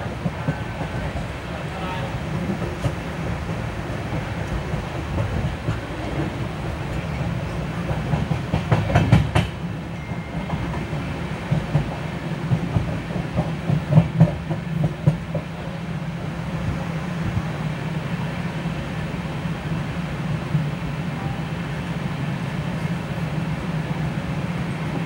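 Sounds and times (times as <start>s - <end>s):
train wheels rumbling on rails: 0.0s - 25.0s
wheels clacking over rail joints: 2.3s - 9.7s.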